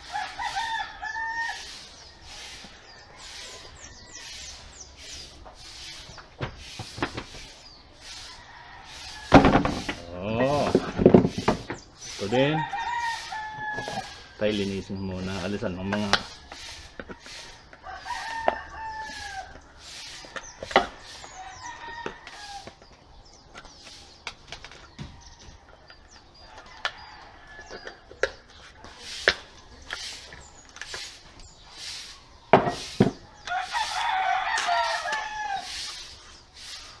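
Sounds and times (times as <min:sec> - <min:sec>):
rooster crowing: 0:00.0 - 0:01.8, 0:12.2 - 0:14.4, 0:16.8 - 0:19.6, 0:21.1 - 0:22.7, 0:33.4 - 0:36.0.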